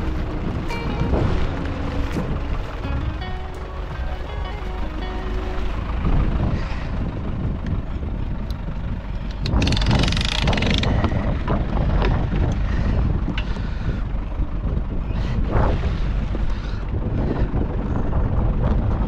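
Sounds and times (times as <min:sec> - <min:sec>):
wind buffeting microphone: 0:00.0 - 0:19.0
sharp clicks: 0:09.2 - 0:11.1.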